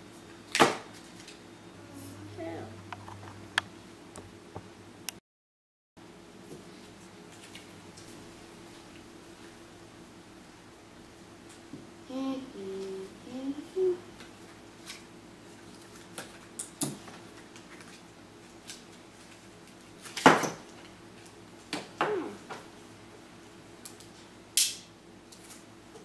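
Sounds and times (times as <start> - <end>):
person humming: 12.1 - 14.1, 22.0 - 22.4.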